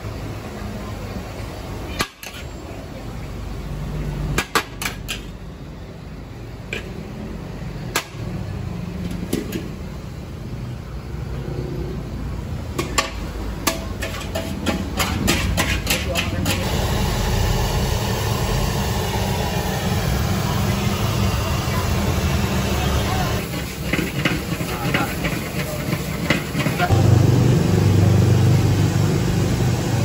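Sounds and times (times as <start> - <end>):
spatula knocking steel wok: 12.8 - 16.5
steady low rumble: 26.9 - 30.0.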